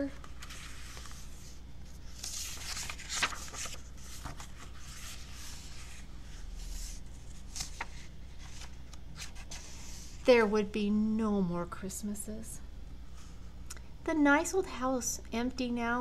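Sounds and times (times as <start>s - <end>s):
book page turning: 0.1s - 10.2s
paper clicks: 2.2s - 4.8s.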